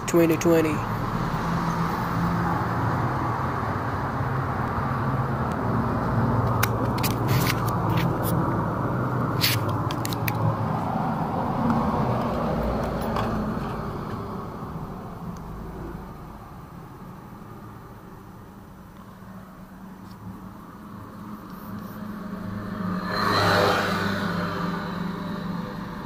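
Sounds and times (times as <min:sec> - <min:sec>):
street traffic: 0:00.0 - 0:26.0
sharp clicks and taps: 0:06.4 - 0:08.4, 0:09.5 - 0:10.5.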